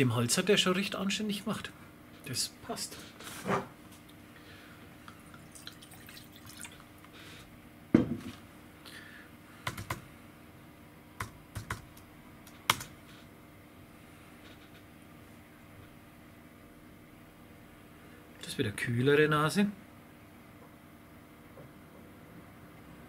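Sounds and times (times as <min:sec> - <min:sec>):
knock: 0:08.0 - 0:08.3.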